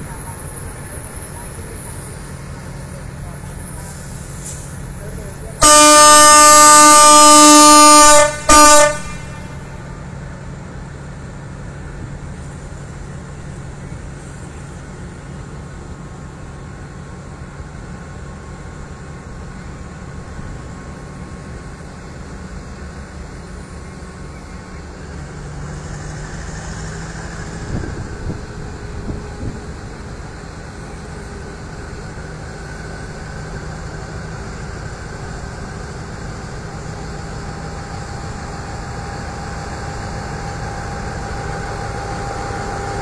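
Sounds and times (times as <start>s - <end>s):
diesel engine droning: 0.0s - 43.0s
locomotive air horn: 5.6s - 10.0s.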